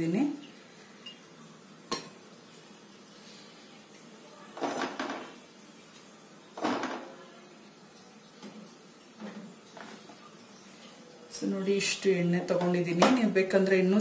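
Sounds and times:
kitchen items handling noise: 0:04.6 - 0:05.4, 0:06.6 - 0:07.2, 0:08.4 - 0:10.2.

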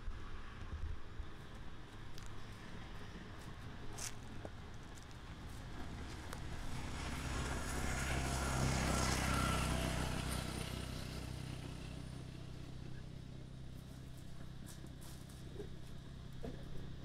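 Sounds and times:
vehicle engine passing: 0:01.8 - 0:15.7.

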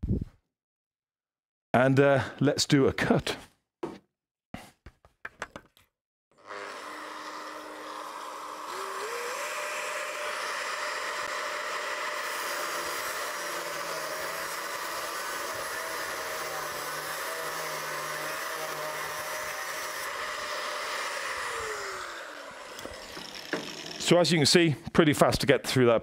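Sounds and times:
angle grinder cutting steel: 0:06.4 - 0:24.4.

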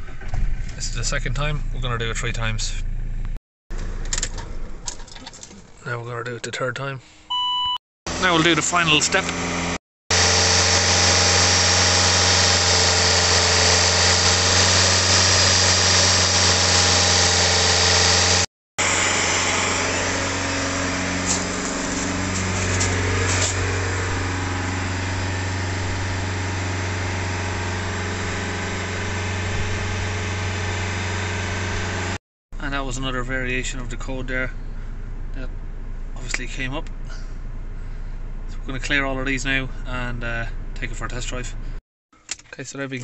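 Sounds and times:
diesel engine idling: 0:08.1 - 0:32.2.

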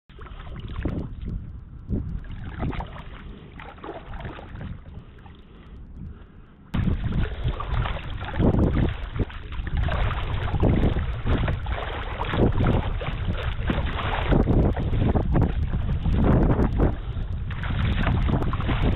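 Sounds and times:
kayak paddle strokes: 0:00.1 - 0:18.9
water splashing against hull: 0:00.1 - 0:18.9
wind buffeting microphone: 0:00.1 - 0:18.9.

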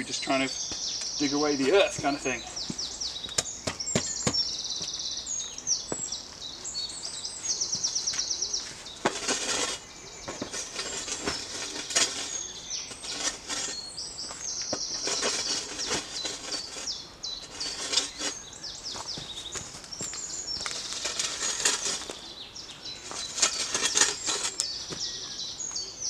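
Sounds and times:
songbirds singing trills: 0:00.0 - 0:26.0
spade digging into stony soil: 0:09.0 - 0:14.0, 0:14.7 - 0:18.7, 0:20.5 - 0:22.2, 0:23.0 - 0:25.1.

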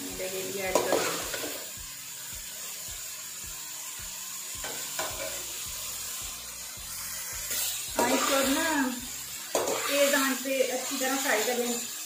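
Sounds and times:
food sizzling in a pan: 0:00.0 - 0:12.0
metal spoon scraping a pan: 0:00.3 - 0:01.8, 0:04.6 - 0:06.2, 0:07.0 - 0:12.0.

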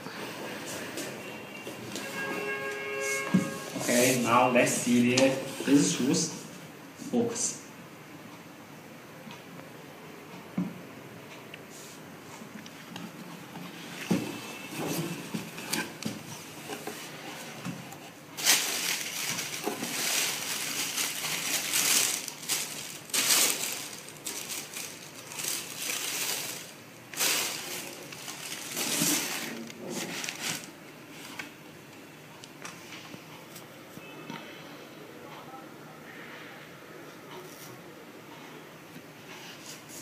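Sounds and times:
paper rustling and crumpling: 0:13.9 - 0:31.3.

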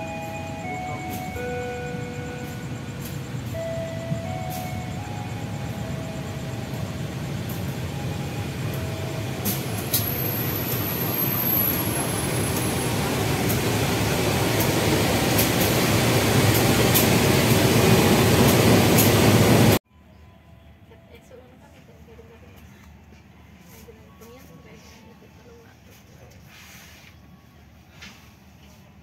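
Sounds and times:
diesel locomotive passing: 0:00.0 - 0:21.0.

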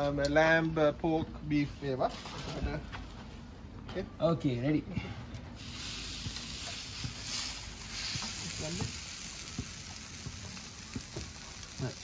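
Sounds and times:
meat sizzling on a hotplate: 0:05.6 - 0:12.0.

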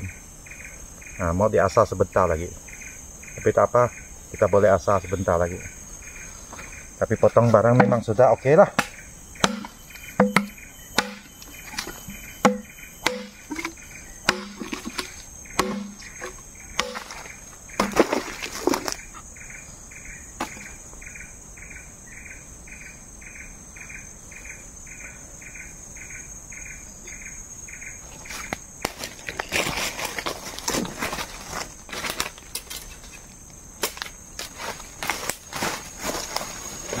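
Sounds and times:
insects chirping: 0:00.0 - 0:37.0
steady high buzz: 0:07.7 - 0:18.4
blade chopping into wood: 0:08.8 - 0:11.3, 0:12.4 - 0:18.8.

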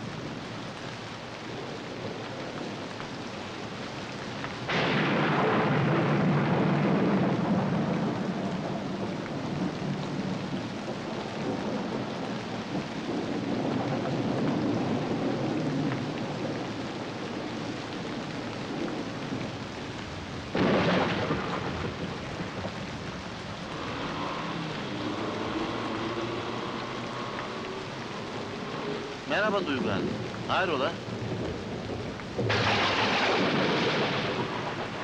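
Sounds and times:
heavy rain: 0:00.0 - 0:35.0
sharp thunderclap: 0:04.6 - 0:09.0, 0:20.5 - 0:22.9, 0:31.2 - 0:35.0
thunder rumbling: 0:04.6 - 0:35.0.

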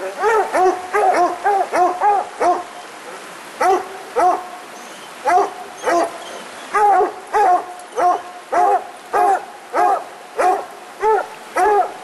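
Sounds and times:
dog barking: 0:00.2 - 0:02.7, 0:03.6 - 0:04.4, 0:05.3 - 0:06.1, 0:06.7 - 0:12.0.

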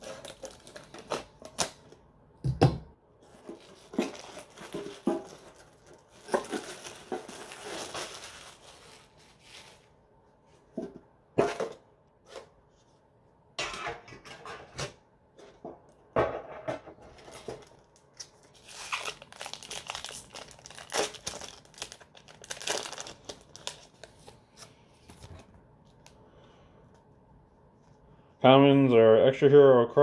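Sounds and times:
foil wrapper tearing and crinkling: 0:00.0 - 0:01.9, 0:03.6 - 0:09.8, 0:17.4 - 0:24.4.

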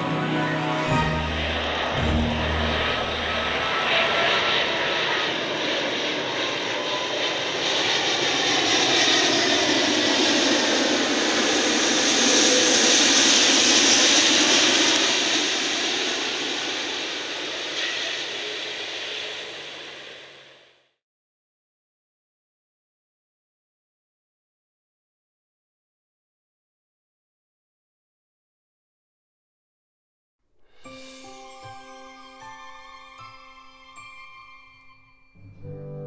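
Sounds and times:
jet engines roaring: 0:00.0 - 0:20.7
faint falling engine whine: 0:00.0 - 0:20.8.

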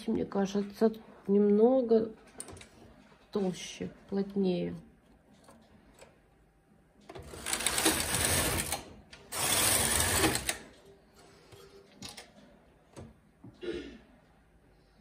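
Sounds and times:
knitting machine carriage passing: 0:07.1 - 0:10.8.

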